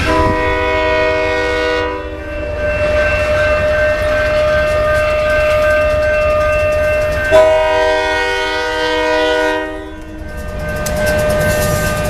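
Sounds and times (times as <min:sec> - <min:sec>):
locomotive air horn blast: 0:00.0 - 0:02.5, 0:07.3 - 0:10.0
warning siren tone: 0:00.0 - 0:10.4.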